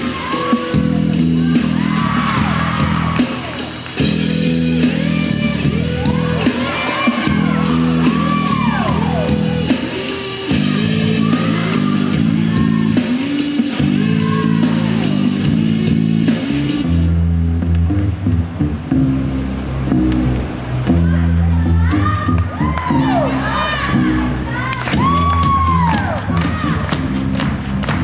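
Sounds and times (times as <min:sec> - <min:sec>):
steady beat: 0:00.0 - 0:21.0
guitar: 0:00.0 - 0:28.0.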